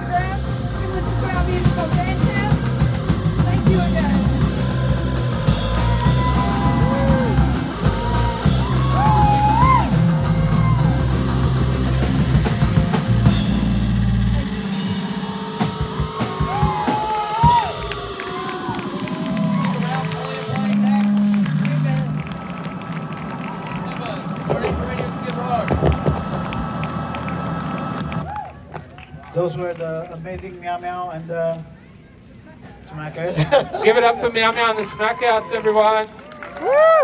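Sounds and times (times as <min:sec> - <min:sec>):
bending melody line: 0:00.0 - 0:28.3
live rock band playing: 0:00.0 - 0:28.3.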